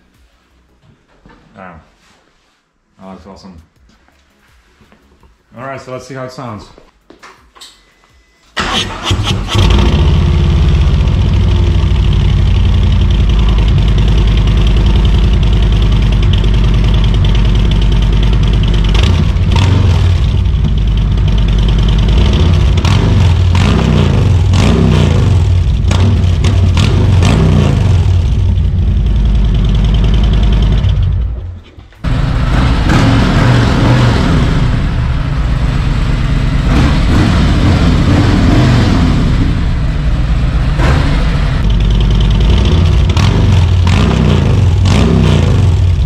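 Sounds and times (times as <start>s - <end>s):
motorcycle engine idling loudly: 9.6s - 31.3s, 41.6s - 46.0s.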